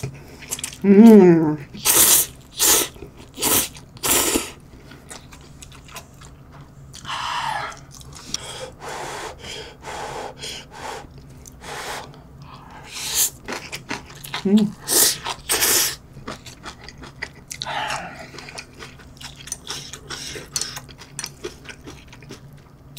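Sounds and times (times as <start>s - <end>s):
chewing with wet mouth sounds: 0.0s - 0.8s, 4.8s - 8.5s, 13.2s - 22.9s.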